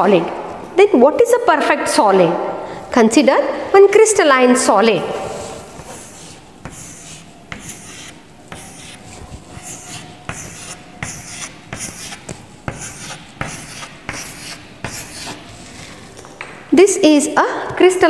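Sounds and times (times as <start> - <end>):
chalk scratching on blackboard: 5.2 - 16.1.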